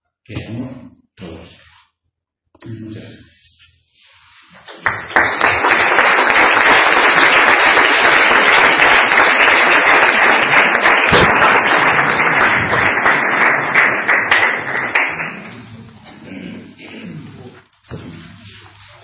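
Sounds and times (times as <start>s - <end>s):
audience applauding: 4.6s - 15.6s.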